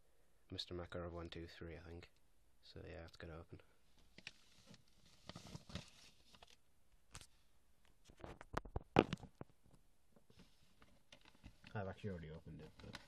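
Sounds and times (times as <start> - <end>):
paper envelope rustling: 4.0 - 6.6.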